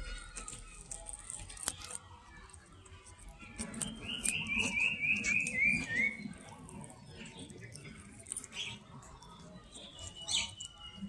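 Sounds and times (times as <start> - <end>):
cat chewing raw fish: 0.0 - 10.8
bird chirping: 3.8 - 11.0.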